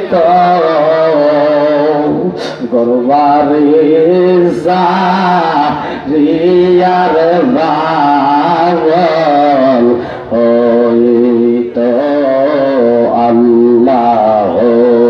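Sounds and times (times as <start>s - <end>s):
man singing into microphone: 0.0s - 15.0s.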